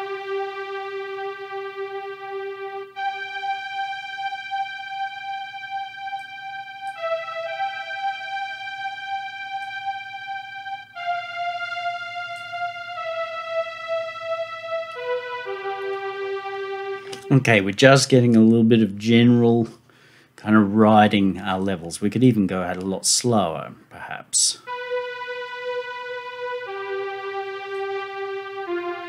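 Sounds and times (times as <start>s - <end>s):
synthesizer pad chords: 0.0s - 18.5s, 24.6s - 29.0s.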